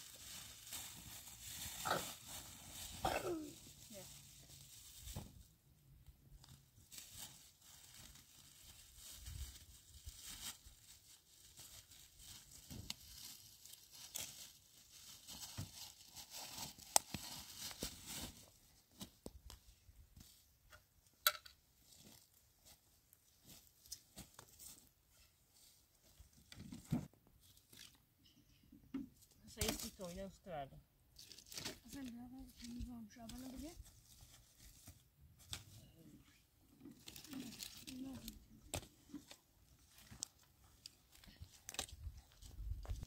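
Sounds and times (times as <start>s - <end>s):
plastic bags crinkling: 0.0s - 5.0s, 37.0s - 38.4s
dry leaves rustling: 0.0s - 5.4s, 6.4s - 18.6s, 31.2s - 35.8s, 37.0s - 38.4s.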